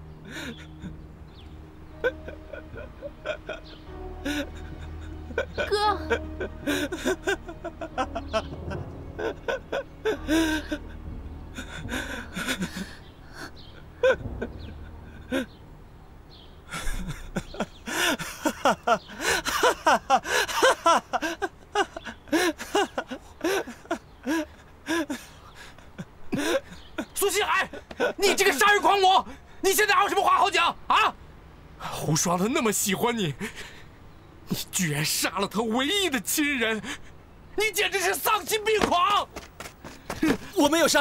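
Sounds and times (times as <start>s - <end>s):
low hum: 0.0s - 18.2s.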